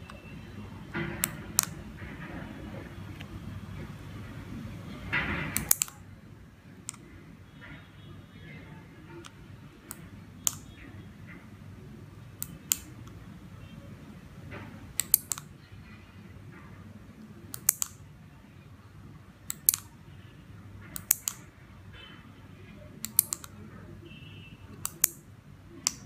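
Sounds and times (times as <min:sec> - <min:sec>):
remote buttons clicking: 0:00.0 - 0:00.3, 0:01.2 - 0:01.8, 0:05.5 - 0:06.0, 0:09.2 - 0:10.7, 0:12.4 - 0:13.2, 0:14.9 - 0:15.5, 0:17.5 - 0:18.0, 0:19.5 - 0:19.9, 0:20.9 - 0:21.5, 0:23.0 - 0:23.6, 0:24.7 - 0:25.2, 0:25.8 - 0:26.0.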